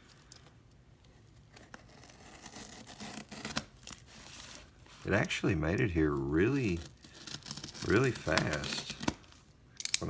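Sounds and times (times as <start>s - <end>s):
utility knife cutting packing tape: 1.5s - 4.0s, 6.7s - 9.2s.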